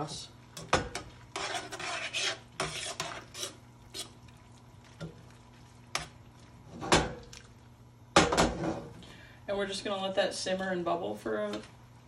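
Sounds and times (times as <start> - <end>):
utensil scraping sauce in pan: 1.0 - 4.3.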